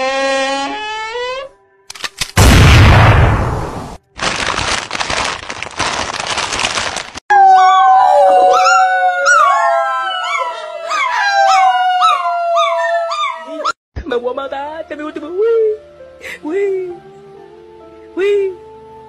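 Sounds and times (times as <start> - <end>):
person howling: 7.3 - 13.7
puppy howling: 7.3 - 13.8.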